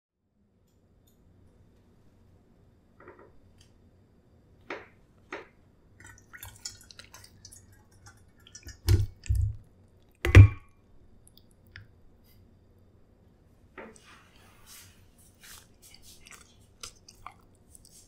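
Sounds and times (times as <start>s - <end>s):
wet food dribbling and spattering: 6.0s - 10.5s, 15.4s - 18.0s
heavy wet plops: 6.0s - 10.6s.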